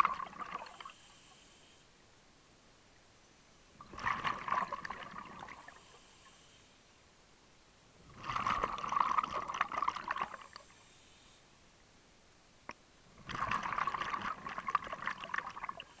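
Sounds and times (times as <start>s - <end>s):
exhaled bubbles underwater: 0.0s - 0.9s, 3.8s - 5.8s, 8.1s - 10.6s, 13.2s - 16.0s
faint click: 12.6s - 12.8s.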